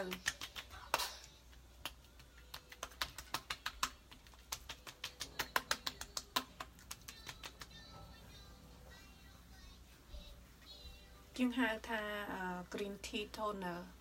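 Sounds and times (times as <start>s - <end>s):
hands patting facial skin: 0.0s - 7.8s.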